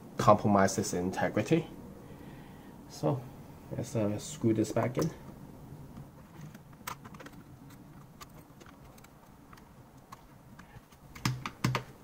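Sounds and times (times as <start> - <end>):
plastic clicks and taps: 8.2 - 11.9.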